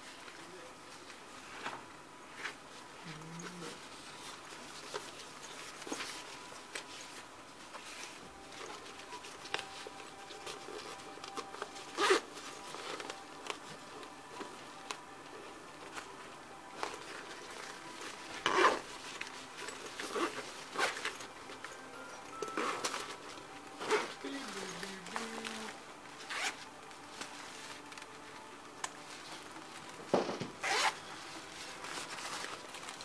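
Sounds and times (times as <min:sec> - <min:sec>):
fabric rubbing and rustling: 0:00.0 - 0:33.0
bag zipper zipping: 0:11.9 - 0:12.3, 0:18.4 - 0:18.9, 0:19.6 - 0:21.2, 0:26.2 - 0:26.6, 0:30.6 - 0:31.0.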